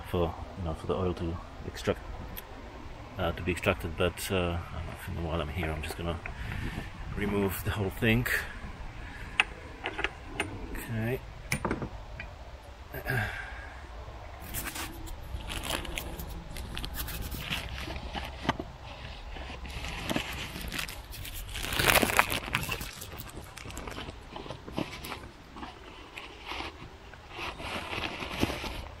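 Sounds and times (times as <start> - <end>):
plastic bag crinkling: 14.4 - 29.0
scrapes and clicks: 14.4 - 29.0.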